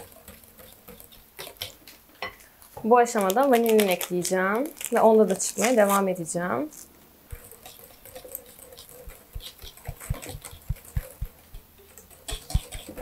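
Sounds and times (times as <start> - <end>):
whisk clicking against glass bowl: 7.3 - 12.9.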